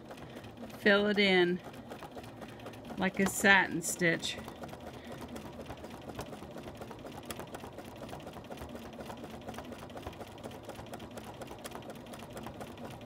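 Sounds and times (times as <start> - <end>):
sewing machine stitching fast: 0.0 - 13.0.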